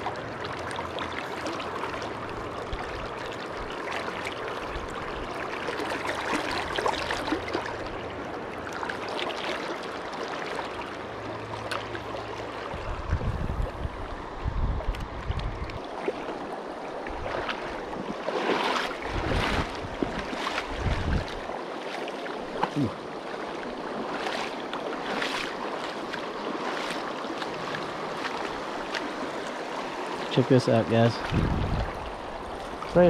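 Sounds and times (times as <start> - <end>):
river rippling and gurgling: 0.0 - 33.0
low rumbling bumps: 19.1 - 21.3, 31.1 - 33.0.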